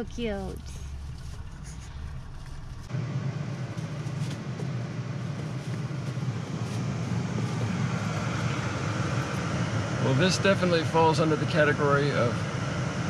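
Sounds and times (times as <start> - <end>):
car cabin rumble and hiss: 0.0 - 13.0.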